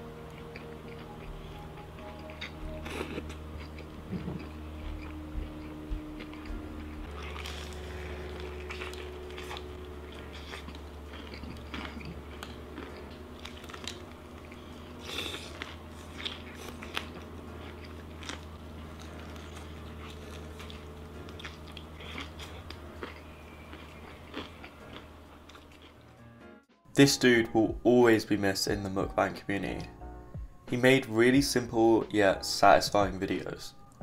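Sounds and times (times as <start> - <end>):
steady low hum: 0.0 - 34.0
crunchy chewing of fried chicken: 0.3 - 26.2.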